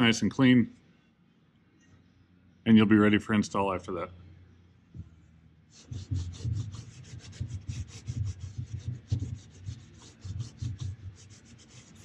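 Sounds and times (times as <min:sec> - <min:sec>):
sandpaper rubbing metal: 0:05.7 - 0:12.0.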